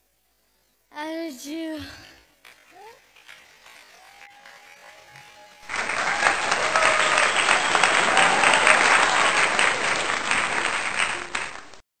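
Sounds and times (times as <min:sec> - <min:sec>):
audience applauding: 0:02.4 - 0:11.8.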